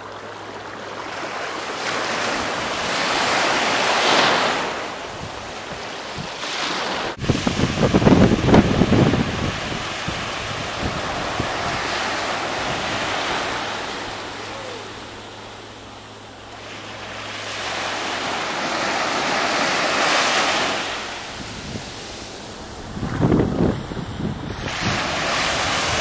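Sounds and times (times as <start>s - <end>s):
waves washing on sand: 0.0s - 26.0s
wind rumble on microphone: 2.1s - 15.4s, 20.6s - 26.0s.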